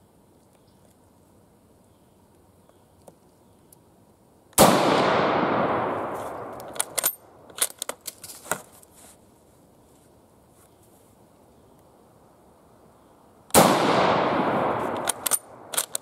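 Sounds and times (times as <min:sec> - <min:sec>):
rifle shot echoing: 0:04.6 - 0:06.9, 0:13.5 - 0:15.9
rifle bolt clicking: 0:06.5 - 0:08.2, 0:14.8 - 0:16.0.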